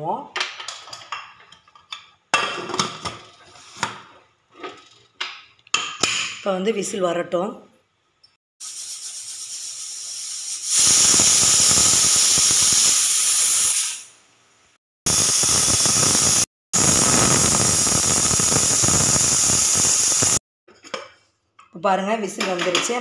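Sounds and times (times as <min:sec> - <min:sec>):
pressure cooker whistle hissing: 0:08.6 - 0:14.2, 0:15.1 - 0:20.4.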